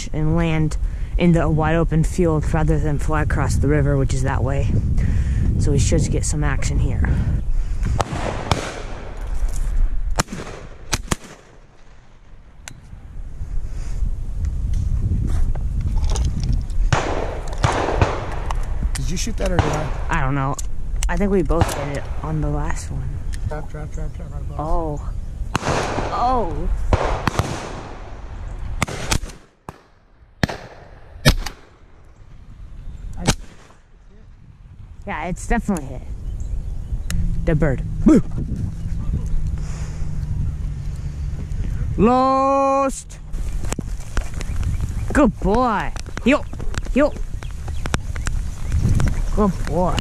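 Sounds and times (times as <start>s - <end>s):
wind rumbling on microphone: 0.0s - 50.0s
shotgun shots: 8.0s - 9.4s, 10.1s - 12.5s, 16.9s - 18.8s, 19.4s - 20.3s, 21.5s - 22.3s, 25.5s - 32.0s, 33.2s - 33.9s.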